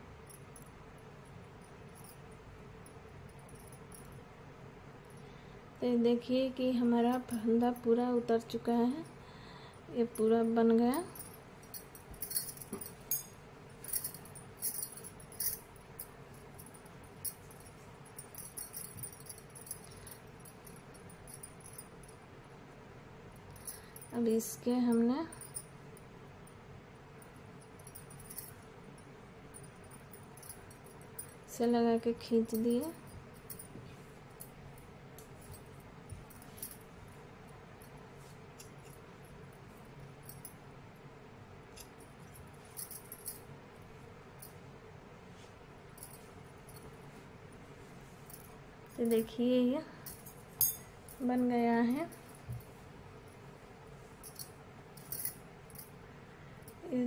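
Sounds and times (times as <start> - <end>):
faint steady hum: 0.0 - 57.0
faint clicks and clinks: 9.0 - 22.3, 23.3 - 26.6, 27.2 - 31.6, 32.2 - 41.1, 41.7 - 44.7, 45.4 - 53.5, 54.1 - 56.0.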